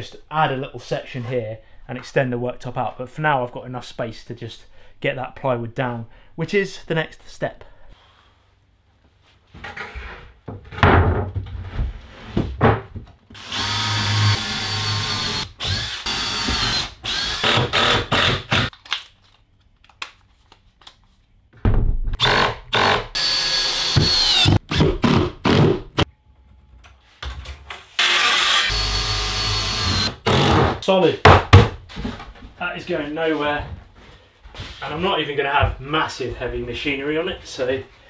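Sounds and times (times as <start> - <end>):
cordless drill driving screws: 13.4 - 18.7, 22.2 - 24.6, 28.0 - 30.5.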